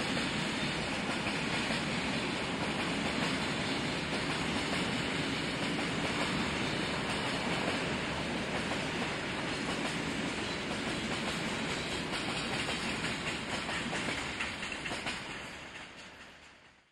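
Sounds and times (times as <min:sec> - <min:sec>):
freight train wheels clattering: 0:00.0 - 0:16.9.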